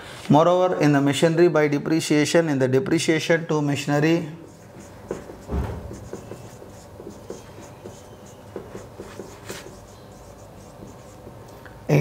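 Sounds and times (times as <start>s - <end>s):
marker pen writing on whiteboard: 4.2s - 11.5s.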